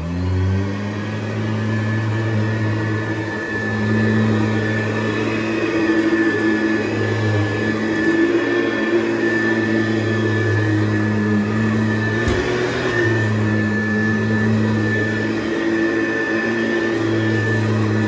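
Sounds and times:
vacuum cleaner running: 0:00.0 - 0:18.0.

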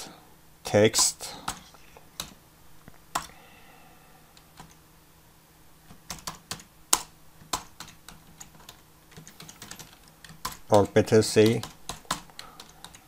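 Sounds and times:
computer keyboard typing: 0:01.5 - 0:02.4, 0:03.1 - 0:03.4, 0:04.4 - 0:04.8, 0:05.9 - 0:13.0.

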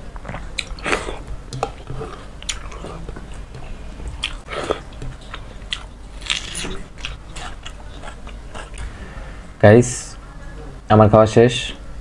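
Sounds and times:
wet mouth chewing: 0:00.2 - 0:08.9.

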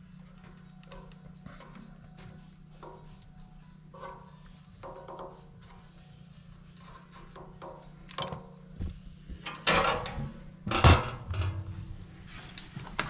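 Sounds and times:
stove door metal clanks: 0:09.4 - 0:12.0.

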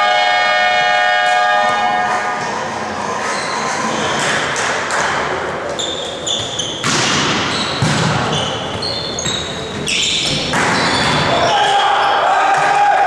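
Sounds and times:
hall noise: 0:00.0 - 0:06.2
shoes squeaking on floor: 0:03.2 - 0:04.4, 0:05.6 - 0:11.8
volleyball hit: 0:06.8 - 0:08.5.

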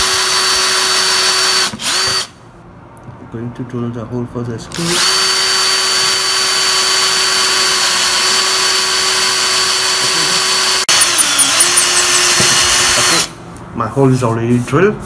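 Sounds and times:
cordless drill boring: 0:00.0 - 0:02.3, 0:04.7 - 0:13.3.

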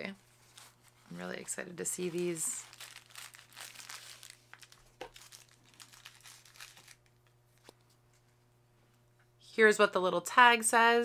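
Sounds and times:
packaging crinkling and rustling: 0:00.4 - 0:07.9.

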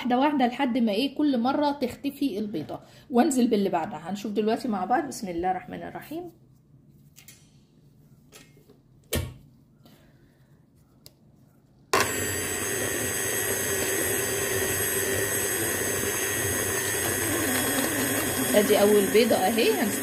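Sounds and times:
stand mixer motor whining: 0:12.0 - 0:20.0.

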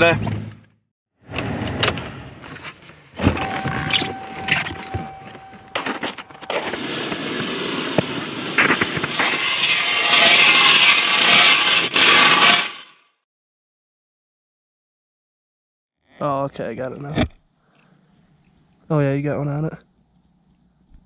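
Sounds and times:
ice auger cutting through ice: 0:05.8 - 0:13.0.

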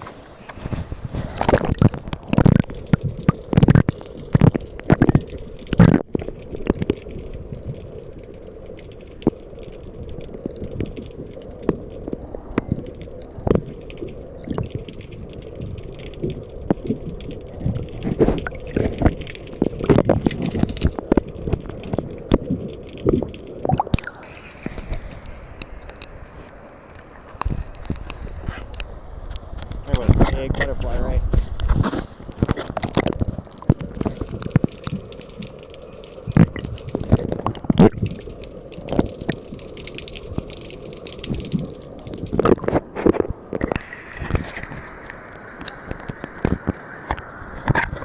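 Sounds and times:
muffled underwater gurgling: 0:00.4 - 0:26.5, 0:29.6 - 0:39.6, 0:41.2 - 0:48.0
underwater knocks and thumps: 0:00.6 - 0:07.8, 0:16.2 - 0:26.1, 0:29.6 - 0:35.3, 0:36.3 - 0:38.2, 0:45.6 - 0:48.0.

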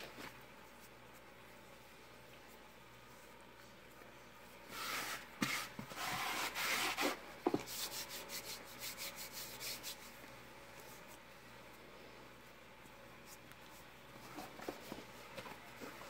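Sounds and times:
dough rubbing against plastic bowl: 0:04.7 - 0:11.3.

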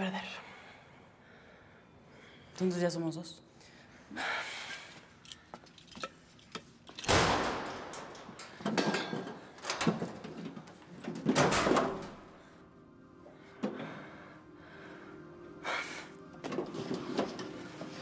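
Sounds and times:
locker rattling clangs: 0:06.9 - 0:12.3.

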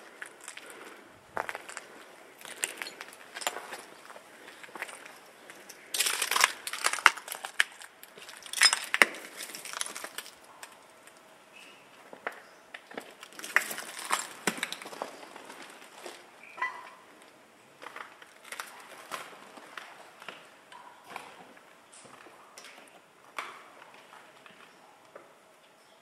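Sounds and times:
footsteps crunching over rubble: 0:00.0 - 0:11.3, 0:11.9 - 0:16.5.

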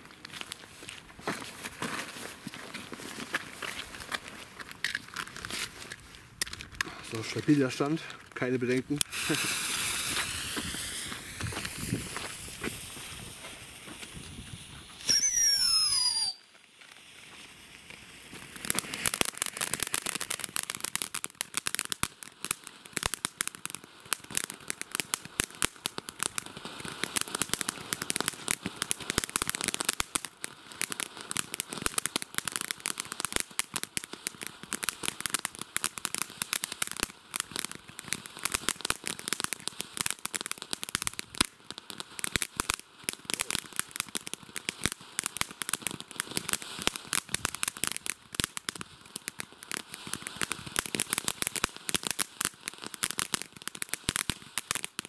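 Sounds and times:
firework crackling: 0:00.0 - 0:55.0
firework spraying sparks: 0:00.0 - 0:55.0
firework whistle sliding in pitch: 0:15.0 - 0:16.5.

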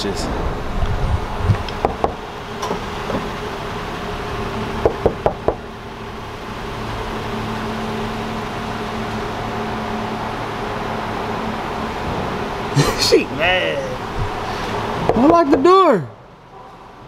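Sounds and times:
fist knocking on car door: 0:01.8 - 0:02.2, 0:04.8 - 0:05.6.

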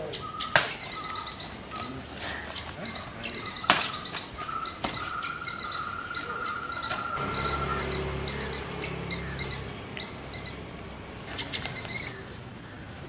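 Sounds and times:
bird calling on high note: 0:00.0 - 0:12.4.

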